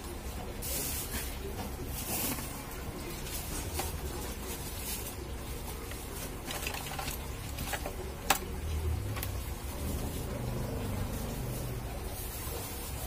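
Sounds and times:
metal parts clicking: 6.5 - 8.5.

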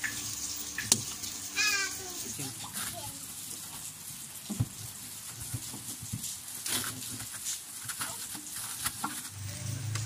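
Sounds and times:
foil insulation rustling and crinkling: 2.4 - 9.4.

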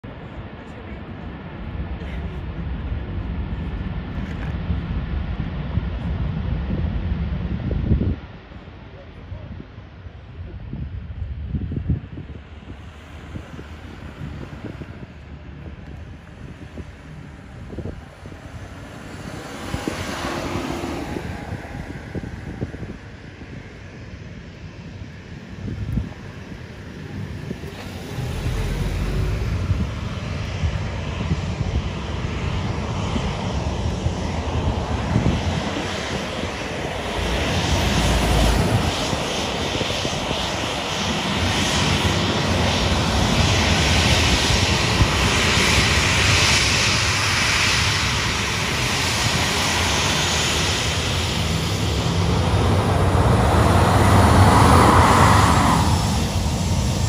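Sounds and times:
jet engines rumbling and whining: 0.0 - 57.0.

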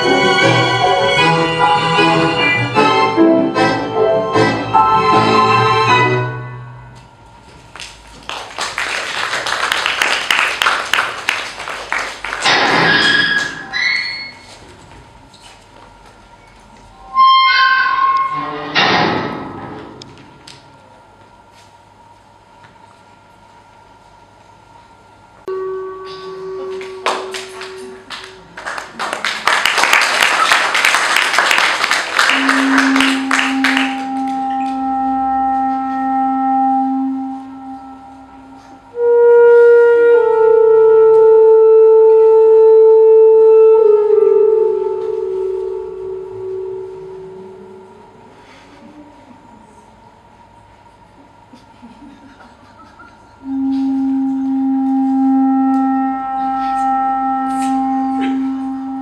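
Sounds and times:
handclaps: 7.7 - 12.7, 26.8 - 34.8
low held wind instrument note: 16.9 - 18.8, 25.3 - 28.6, 32.2 - 49.9, 53.4 - 59.0
higher wind instrument note: 25.4 - 28.6, 32.2 - 49.0, 53.4 - 59.0.

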